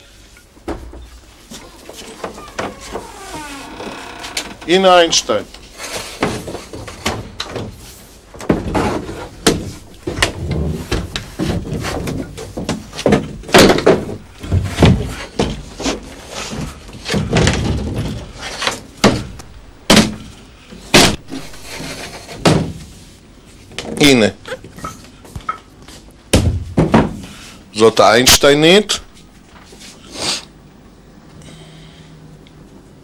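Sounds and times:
wooden panels knocking and thudding: 0.6s - 3.4s, 6.0s - 7.8s, 8.4s - 22.9s, 26.3s - 27.4s.

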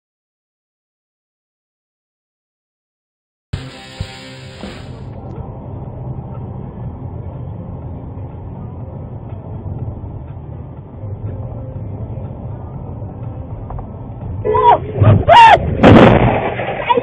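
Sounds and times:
car engine and tyre rumble: 3.6s - 16.8s.

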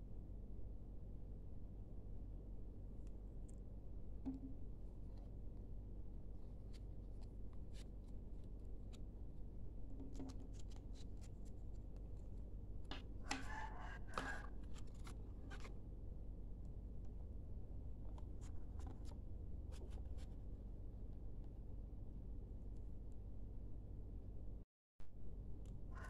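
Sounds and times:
paper rustling: 10.0s - 15.8s.

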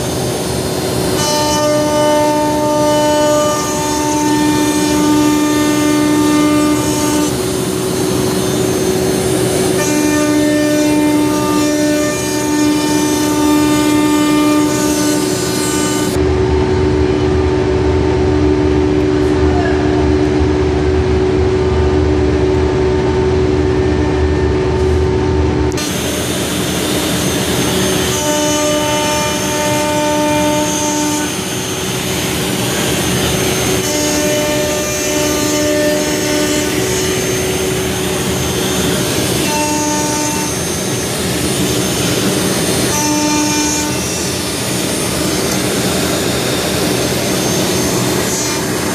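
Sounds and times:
router spindle high whine: 0.0s - 48.9s.

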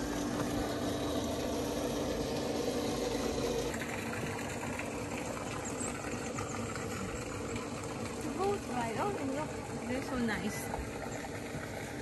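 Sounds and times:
small motor humming: 0.0s - 12.0s.

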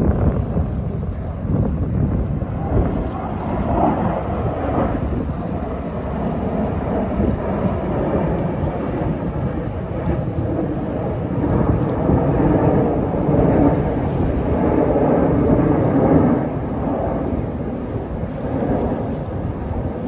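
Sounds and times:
distant jet engine rumble: 0.0s - 20.0s.

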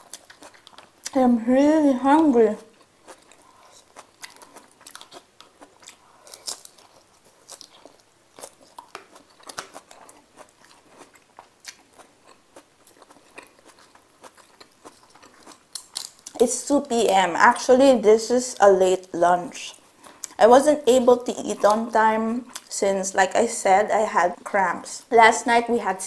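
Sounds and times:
person chewing crunchy salad: 0.0s - 1.2s, 2.2s - 16.4s, 19.8s - 20.4s, 22.5s - 22.7s.

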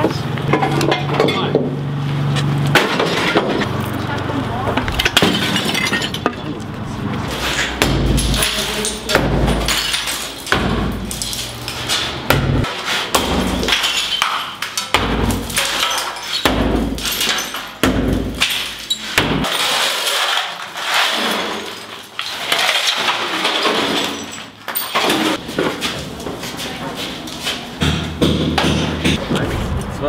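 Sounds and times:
tile shards clattering: 5.0s - 6.6s, 7.3s - 25.4s
sledgehammer striking tiled wall: 7.8s - 11.2s, 12.2s - 20.1s, 27.8s - 29.2s.

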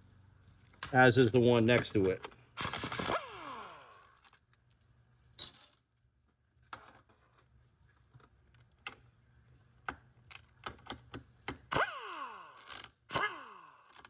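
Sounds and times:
low shop hum: 0.0s - 14.0s.

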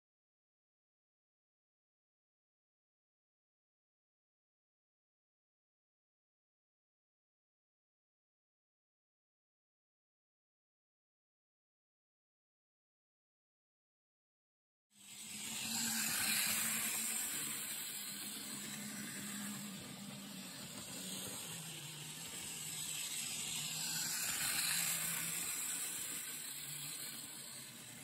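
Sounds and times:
model train whirring hum: 15.0s - 28.0s.

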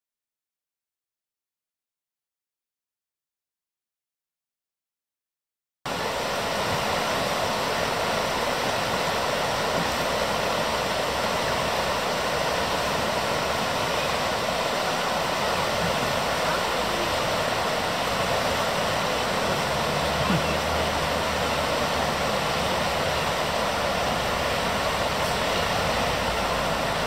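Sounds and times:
river rushing over gravel: 5.9s - 27.0s.

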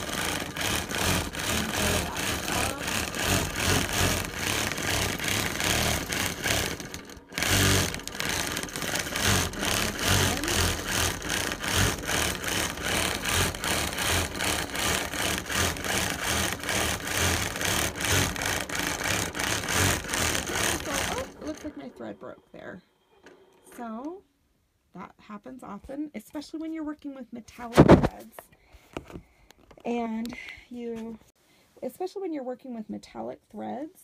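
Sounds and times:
quilting machine stitching: 0.0s - 23.4s.

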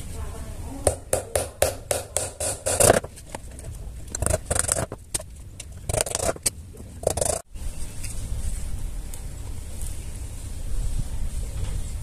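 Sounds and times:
hammer striking nails into plywood: 0.9s - 3.1s.

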